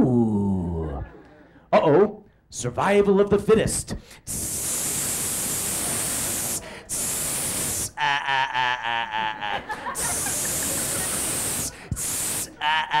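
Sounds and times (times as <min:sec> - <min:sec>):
steady hiss: 0:04.3 - 0:08.0, 0:09.8 - 0:12.6.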